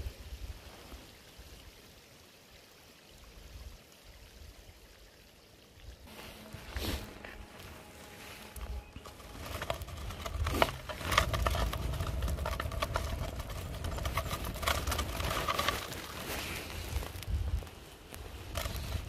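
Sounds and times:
scooter wheels rolling on asphalt: 6.2 - 19.0.

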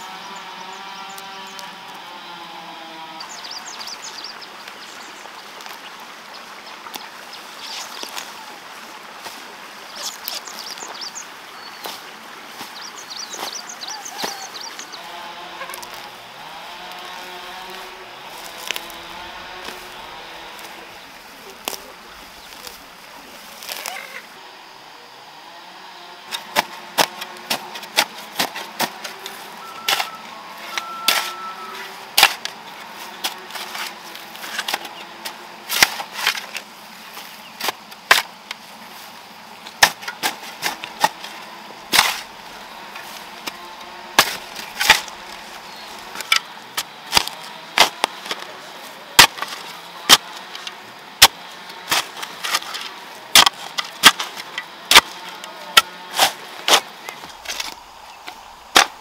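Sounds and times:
metal hoe chopping soil: 15.0 - 22.9, 26.3 - 38.4, 39.7 - 48.6, 49.2 - 59.0.

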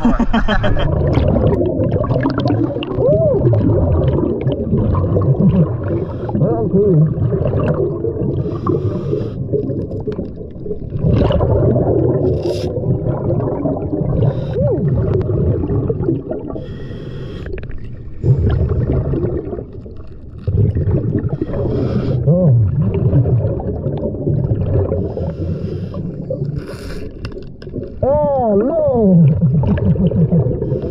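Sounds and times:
rumble of exhaled bubbles: 0.0 - 30.9
hissing regulator inhalations: 8.4 - 9.5, 12.4 - 12.8, 14.2 - 14.6, 16.6 - 17.7, 21.3 - 22.3, 25.0 - 27.2.

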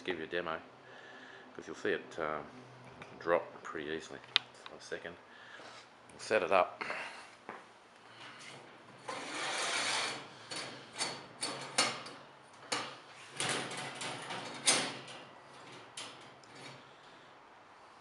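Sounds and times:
metal mesh scraping: 8.4 - 17.0
metal clanks and rattles: 10.4 - 16.9.

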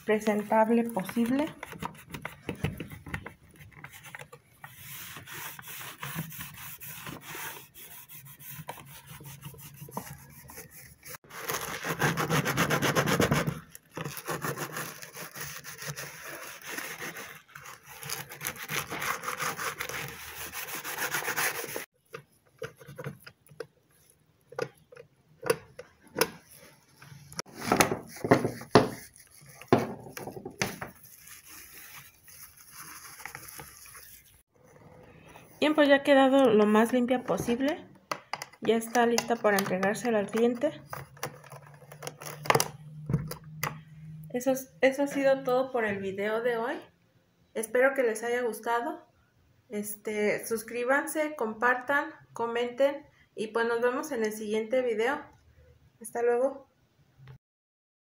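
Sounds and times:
cloth wiping plastic: 3.5 - 13.3, 14.0 - 21.9, 26.4 - 34.4.

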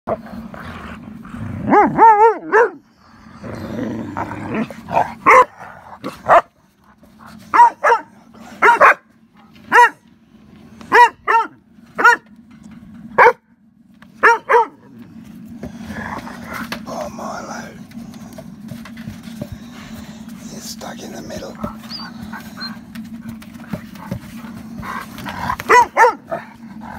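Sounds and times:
dog barking: 1.7 - 2.8, 5.2 - 5.5, 6.3 - 6.5, 7.5 - 9.1, 9.7 - 10.0, 10.9 - 12.2, 13.2 - 13.4, 14.2 - 14.9, 25.6 - 26.4.

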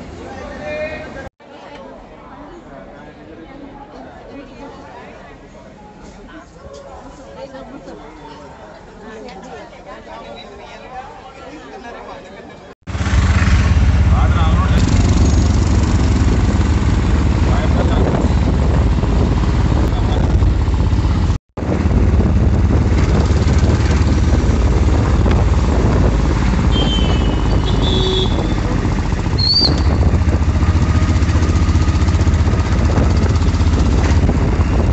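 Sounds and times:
small vehicle engine and road noise: 12.9 - 34.9.

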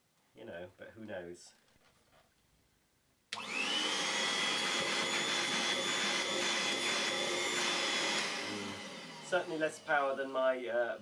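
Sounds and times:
hand vacuum cleaner whining: 3.4 - 11.0.

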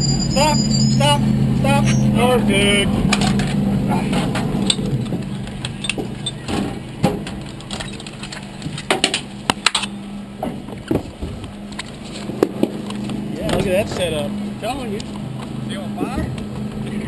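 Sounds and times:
low engine hum: 0.0 - 17.0
clicks and knocks of gear: 3.1 - 10.0.

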